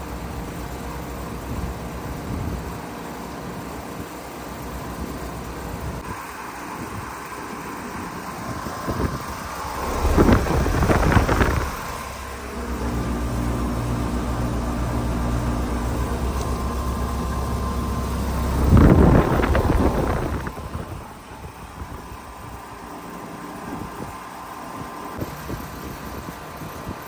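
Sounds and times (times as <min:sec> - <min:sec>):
fan whirring: 0:00.0 - 0:27.0
heat pump electric hum: 0:00.0 - 0:27.0
rumbling bursts on microphone: 0:09.1 - 0:14.8, 0:18.0 - 0:21.3.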